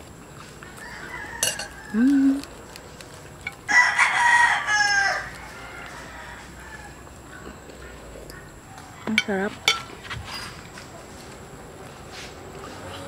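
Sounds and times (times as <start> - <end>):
rooster crowing: 0.6 - 2.1, 3.6 - 7.3.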